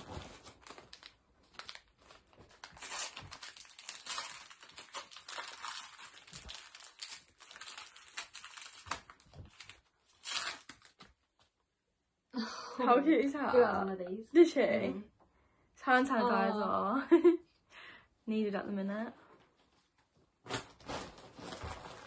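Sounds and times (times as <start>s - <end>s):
gift wrapping rustling and tearing: 0.0s - 11.3s, 20.5s - 22.0s.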